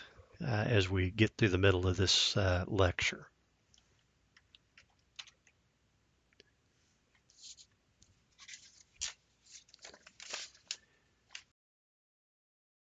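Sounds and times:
desk handling clicks and rustles: 0:08.4 - 0:11.5.

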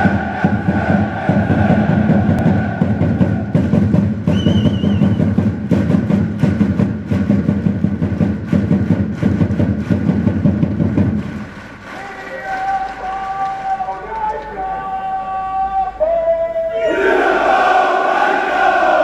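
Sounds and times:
warbling whistle: 0:04.3 - 0:05.3
crowd clapping: 0:06.4 - 0:15.0.

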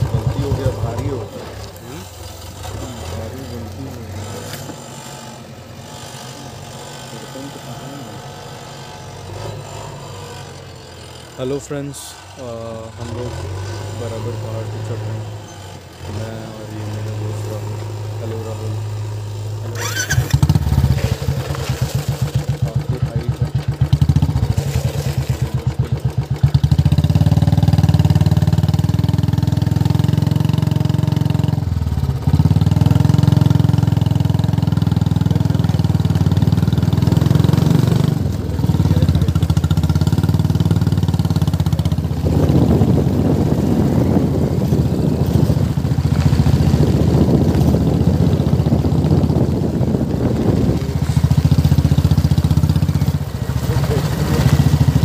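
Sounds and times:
motorcycle engine running: 0:00.0 - 0:55.0
wind noise on microphone: 0:41.2 - 0:52.9.

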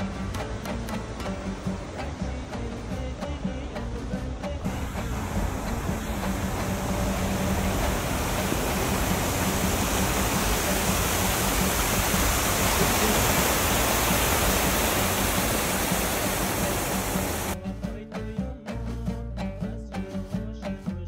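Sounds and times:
stream cascading over rocks: 0:00.0 - 0:17.6.

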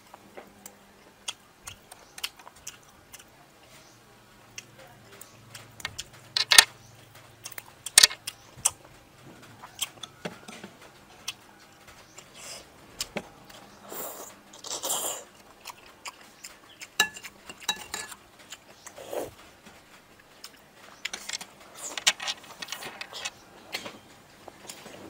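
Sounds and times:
chewing and biting: 0:11.2 - 0:23.8
metal spoon clinking on ceramic bowl: 0:17.0 - 0:18.2.

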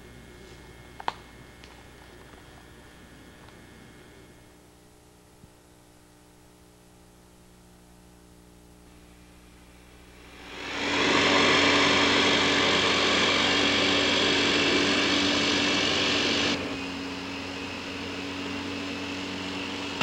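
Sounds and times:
electric lawn mower running: 0:10.3 - 0:20.0.

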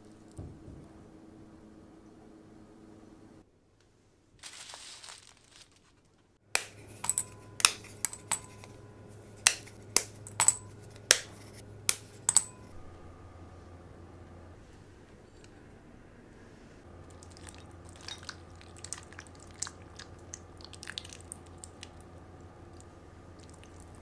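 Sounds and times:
brief rustle: 0:04.4 - 0:06.2
chocolate clinking into glass bowl: 0:06.6 - 0:08.7, 0:09.5 - 0:11.3, 0:12.2 - 0:12.7.

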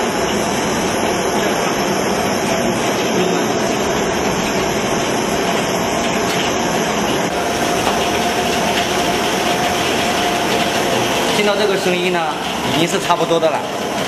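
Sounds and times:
popcorn popping: 0:07.2 - 0:13.1.

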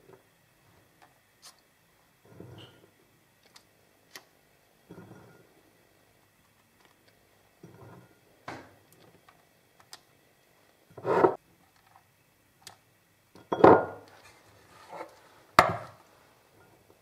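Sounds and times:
short knocks and scrapes: 0:11.0 - 0:11.4.

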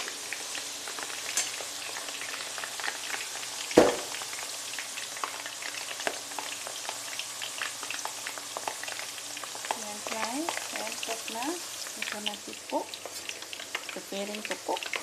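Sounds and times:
potato slices sizzling in oil: 0:00.0 - 0:15.0
sharp knock: 0:03.8 - 0:04.1.

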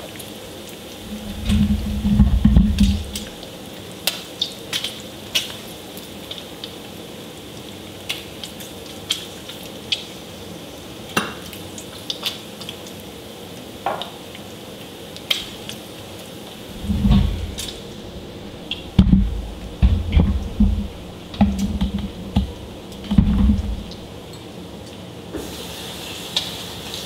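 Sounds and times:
grease popping and crackling: 0:01.0 - 0:03.4, 0:16.7 - 0:24.4
bacon sizzling in a skillet: 0:25.4 - 0:27.0.

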